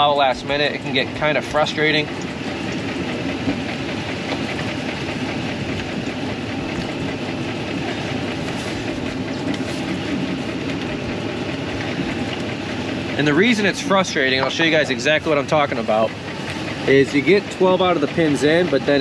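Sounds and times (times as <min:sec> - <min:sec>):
truck engine idling: 0:00.0 - 0:19.0.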